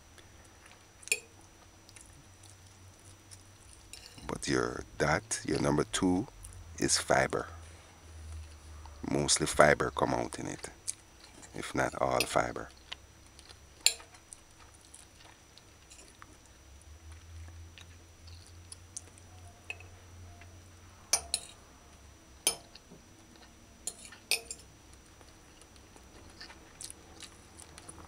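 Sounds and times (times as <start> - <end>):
fork clinking and scraping plate: 3.9 - 4.3, 23.9 - 24.6.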